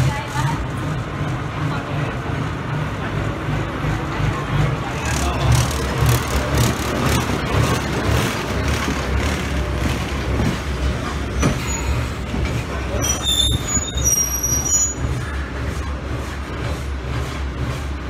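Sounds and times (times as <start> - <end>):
diesel engine rumbling: 0.0 - 18.0
high squeal: 13.0 - 15.1.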